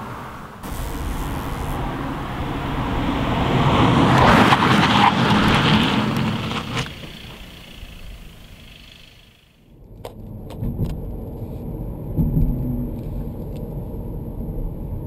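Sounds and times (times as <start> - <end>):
car driving fast past: 0.0 - 9.5.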